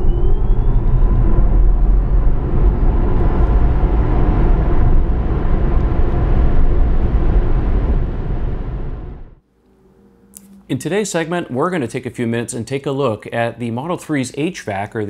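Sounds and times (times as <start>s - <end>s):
rumbling rush sound effect: 0.0s - 11.5s
rising whine: 0.0s - 11.9s.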